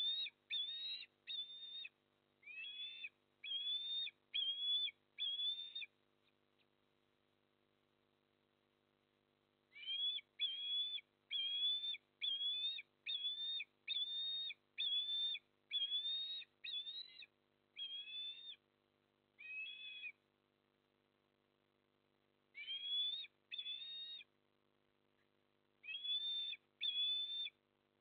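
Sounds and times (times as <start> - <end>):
osprey whistled calls: 0.0 - 5.9, 9.7 - 18.6, 19.4 - 20.2, 22.6 - 24.3, 25.8 - 27.6.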